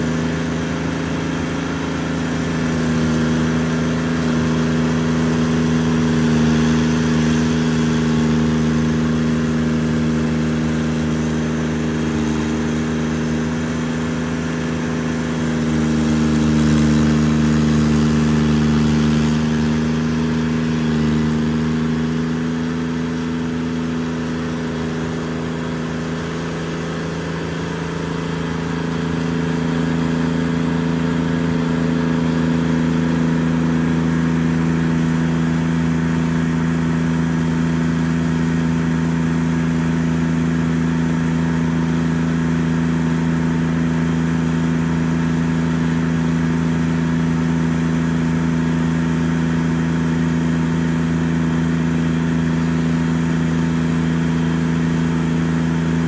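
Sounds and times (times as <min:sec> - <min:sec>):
cutter wheel grinding stump: 0:00.0 - 0:56.0
stump grinder engine running: 0:00.0 - 0:56.0.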